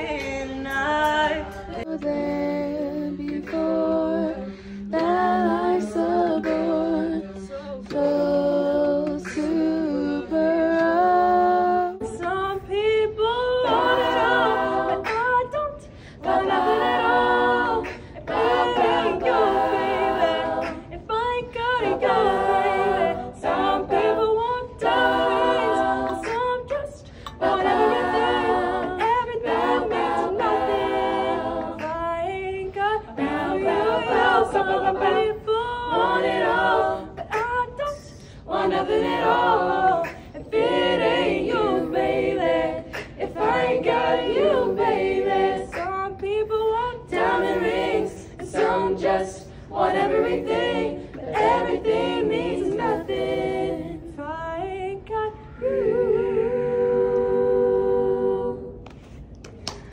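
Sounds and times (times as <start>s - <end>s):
female soloist singing: 0.0s - 50.6s
women's a cappella singing: 0.0s - 59.9s.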